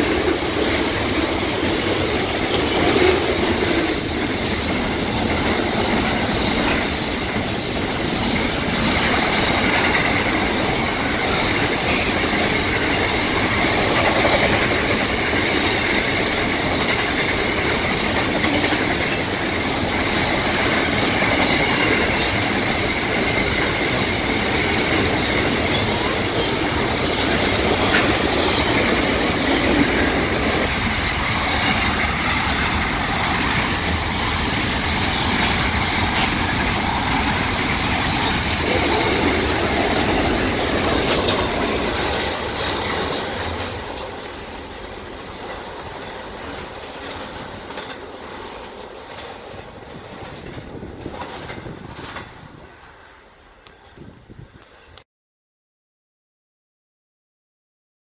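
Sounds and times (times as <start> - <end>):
train wagons rumbling on rails: 0.0 - 55.0
high wheel squeal: 19.1 - 41.2.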